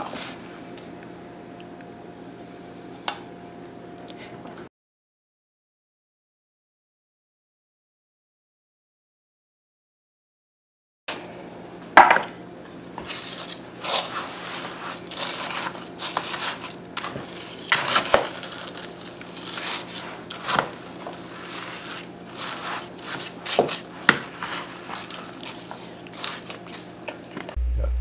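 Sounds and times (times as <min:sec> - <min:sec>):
wooden spoon scraping bowl: 0:13.0 - 0:26.8.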